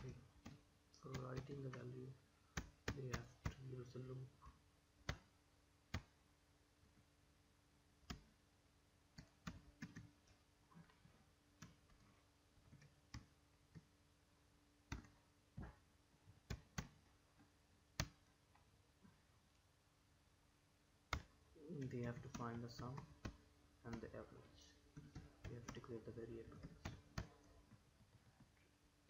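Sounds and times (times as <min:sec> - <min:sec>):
computer keyboard keystrokes: 0:25.0 - 0:27.3.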